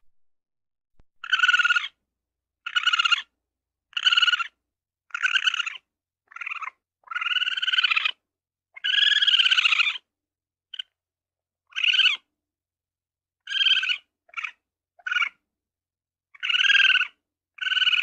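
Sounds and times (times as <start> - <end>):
ferret clucking chatter: 1.2 - 2.0, 2.7 - 3.3, 4.0 - 8.2, 8.8 - 10.0, 16.4 - 18.0.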